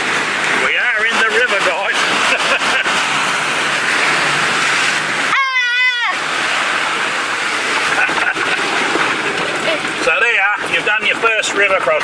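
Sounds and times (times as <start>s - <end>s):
river water splashing against vehicle: 0.0s - 12.0s
high wavering voice cry: 5.3s - 6.2s.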